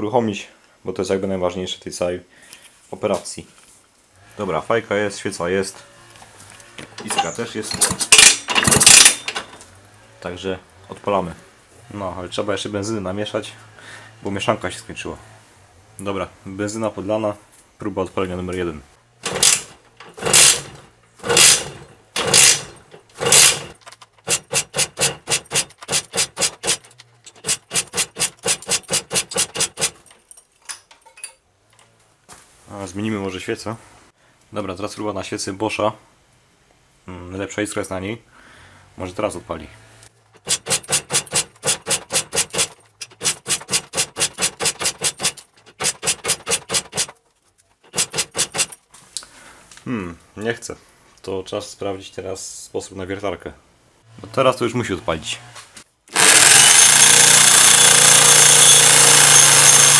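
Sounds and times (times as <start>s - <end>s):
scooter engine cranking: 19.2s - 30.1s, 40.3s - 47.2s, 56.1s - 59.9s.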